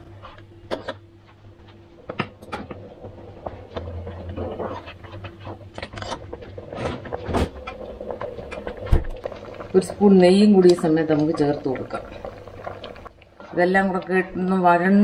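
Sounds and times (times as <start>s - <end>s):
low hum: 0.0s - 15.0s
thick liquid bubbling: 1.5s - 15.0s
spatula scraping a pan: 3.4s - 7.9s.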